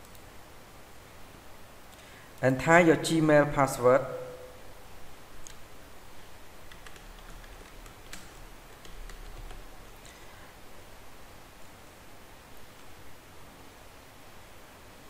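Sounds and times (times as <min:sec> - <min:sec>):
keyboard key clicks: 0:06.7 - 0:10.2.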